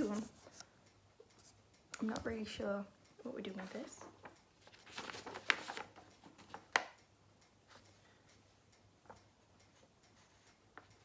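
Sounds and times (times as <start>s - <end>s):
paper rustling: 3.6s - 6.9s.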